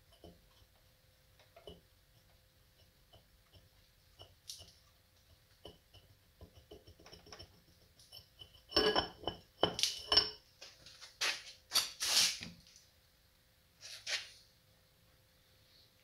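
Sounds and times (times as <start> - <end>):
metal clinking and scraping: 5.6 - 12.4.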